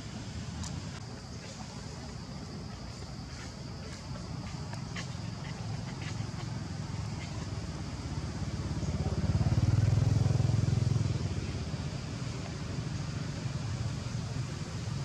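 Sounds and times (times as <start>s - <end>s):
vehicle engine passing by: 4.7s - 14.5s.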